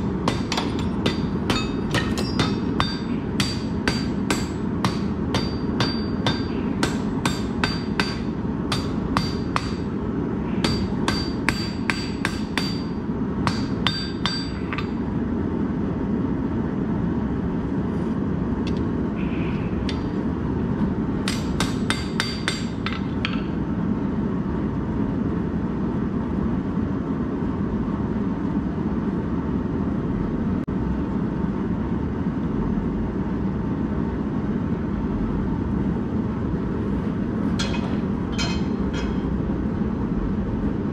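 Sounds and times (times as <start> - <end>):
hammer blows on hot steel: 0.0 - 15.0.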